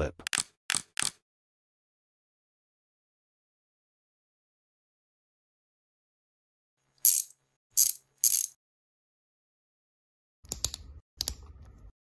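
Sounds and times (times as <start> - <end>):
ratchet-like clicks of knob: 7.1 - 8.5.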